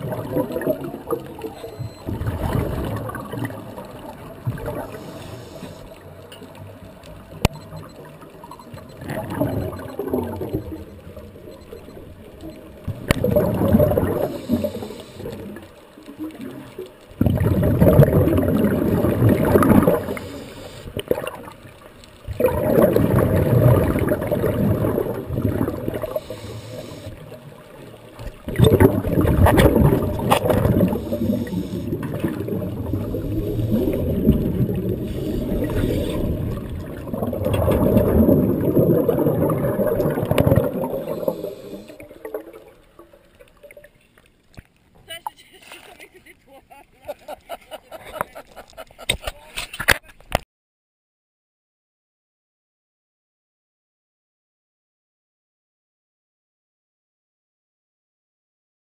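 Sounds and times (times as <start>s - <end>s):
diver's breath bubbling underwater: 13.1s - 15.6s, 17.2s - 21.5s, 22.4s - 27.1s, 28.5s - 42.7s.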